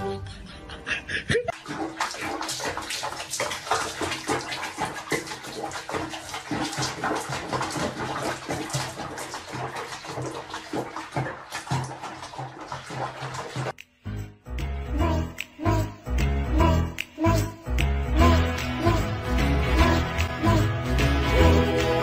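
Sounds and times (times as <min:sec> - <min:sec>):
water splashing in a basin: 0:01.5 - 0:13.8.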